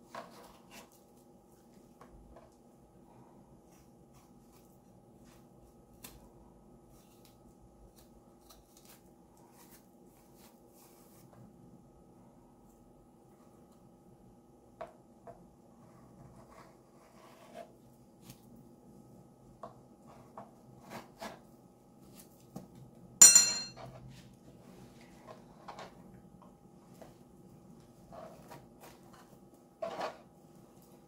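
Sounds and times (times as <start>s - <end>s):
faint steady hum: 0.0s - 31.0s
sharp metallic clink: 23.2s - 23.8s.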